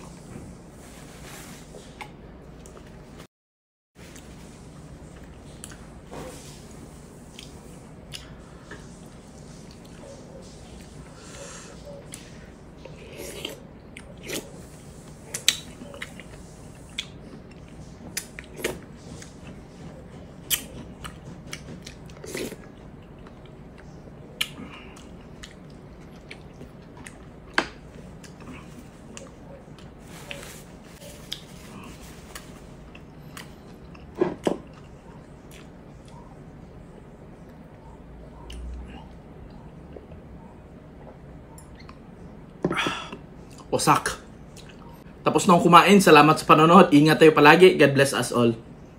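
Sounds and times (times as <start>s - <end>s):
chewing and mouth noises: 11.8s - 36.4s.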